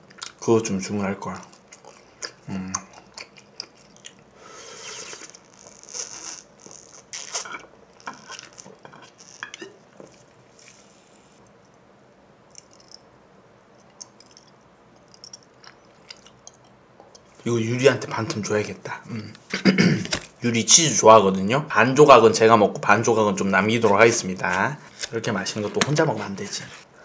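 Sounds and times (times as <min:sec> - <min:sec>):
mouth and drinking sounds: 0:01.7 - 0:09.8.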